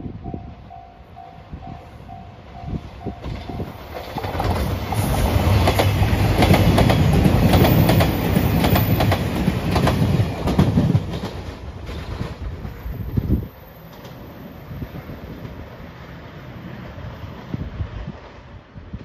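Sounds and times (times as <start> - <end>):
diesel train engine hum: 0.0 - 19.0
train wheels clattering over rail joints: 3.2 - 14.3.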